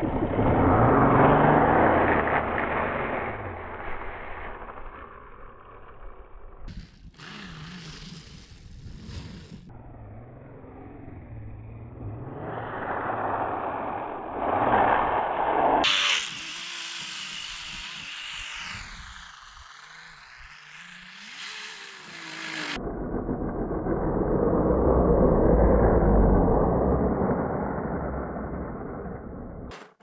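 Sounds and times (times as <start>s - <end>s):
electric motor whining: 6.7s - 9.7s, 15.8s - 22.8s.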